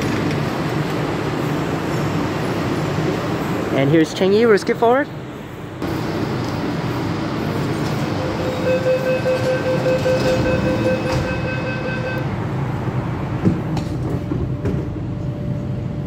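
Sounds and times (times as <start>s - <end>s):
train wheels rumbling on rail: 5.1s - 16.0s.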